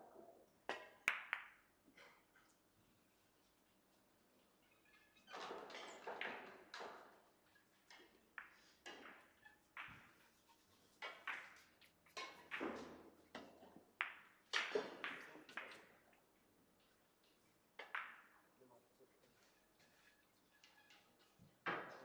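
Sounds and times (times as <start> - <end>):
billiard balls clacking: 5.5 - 16.0.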